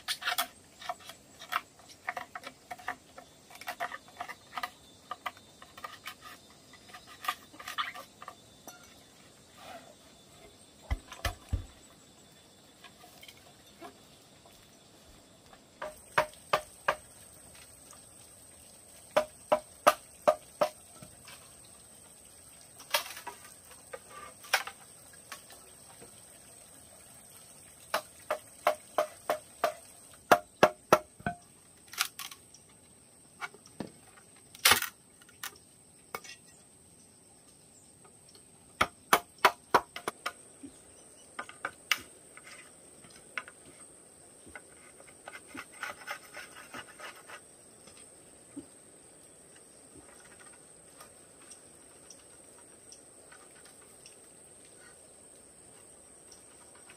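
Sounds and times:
machete chopping bamboo: 10.9s - 11.8s, 15.8s - 17.0s, 38.8s - 40.4s.

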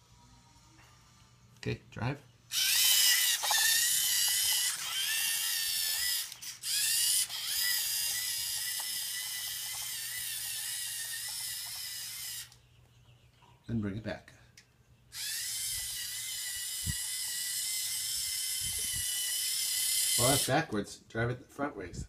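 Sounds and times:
robot car motors whining: 2.5s - 12.6s, 15.2s - 20.6s.

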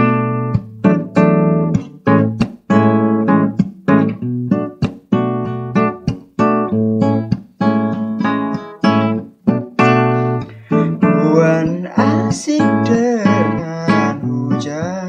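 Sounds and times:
acoustic guitar strumming chords: 0.0s - 15.0s
person singing: 10.4s - 15.0s.

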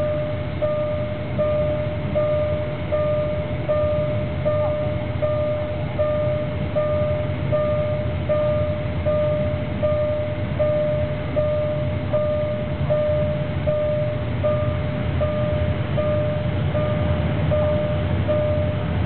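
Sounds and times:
level crossing warning tone: 0.0s - 19.0s
low engine rumble: 0.0s - 19.0s.

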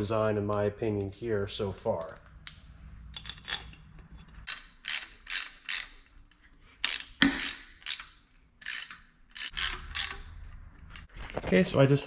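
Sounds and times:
socket ratchet ratcheting: 4.4s - 6.2s, 6.8s - 11.1s.

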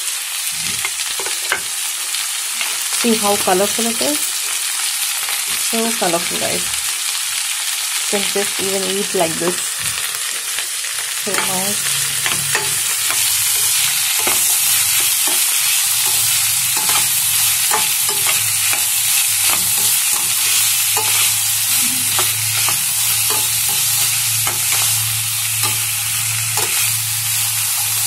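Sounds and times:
vegetables sizzling in oil: 0.0s - 28.0s
steady low hum: 11.2s - 28.0s
spatula scraping a pan: 11.3s - 28.0s.

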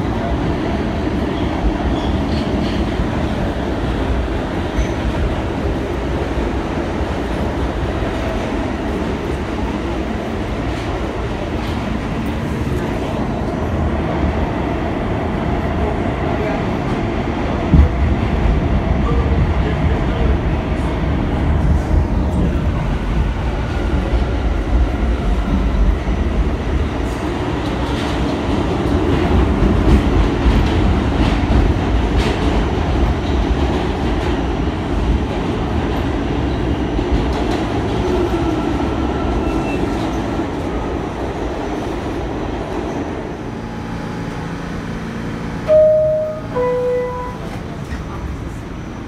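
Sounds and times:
subway car rumbling in tunnel: 0.0s - 49.0s
door-closing chime: 45.7s - 47.5s.

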